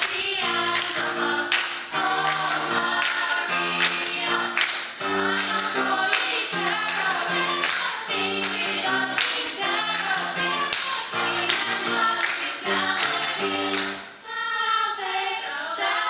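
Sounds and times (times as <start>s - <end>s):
girls singing in harmony: 0.0s - 16.0s
hand claps: 0.8s - 9.4s, 10.0s - 14.0s.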